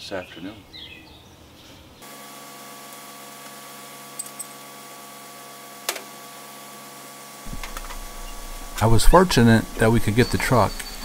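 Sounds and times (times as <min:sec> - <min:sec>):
concrete mixer truck humming: 0:02.0 - 0:11.0.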